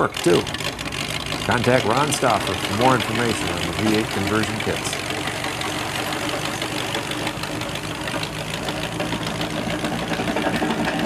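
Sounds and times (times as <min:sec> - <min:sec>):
tractor engine running: 0:00.0 - 0:11.0.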